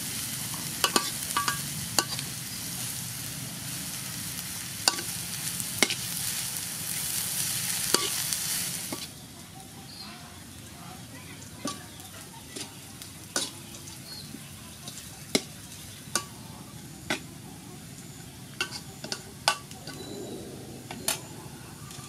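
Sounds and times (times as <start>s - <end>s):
oil sizzling in a wok: 0.0s - 22.0s
spatula clinking on a wok: 0.5s - 2.3s, 4.8s - 5.2s, 5.8s - 6.2s, 7.8s - 8.2s, 11.6s - 17.3s, 18.1s - 20.1s.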